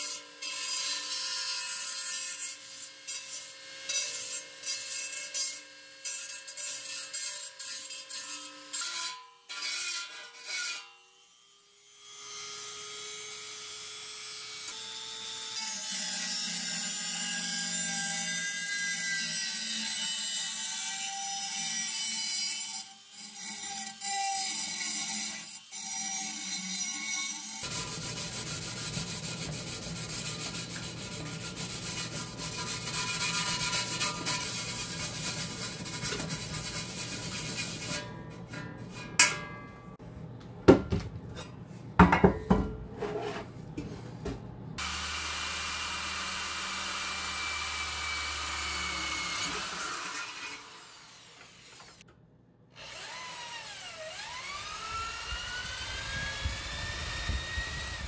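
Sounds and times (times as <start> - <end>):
power tool grinding metal: 0.0 - 13.9, 14.5 - 39.2, 44.8 - 52.0, 52.8 - 58.0
sharp metal clanks: 38.6 - 40.0.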